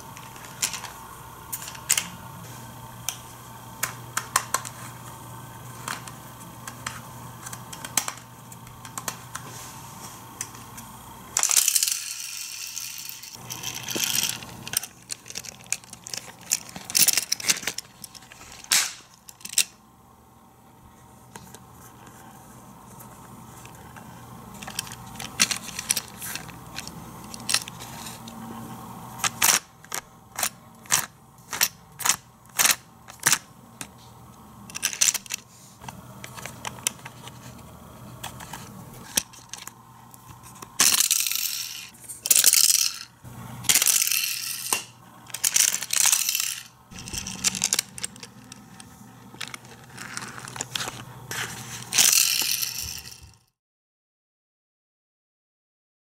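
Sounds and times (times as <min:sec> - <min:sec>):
plastic toy rattling and scraping: 0:00.2 - 0:01.0, 0:11.4 - 0:19.8, 0:21.3 - 0:28.4, 0:29.2 - 0:34.0, 0:34.6 - 0:53.5.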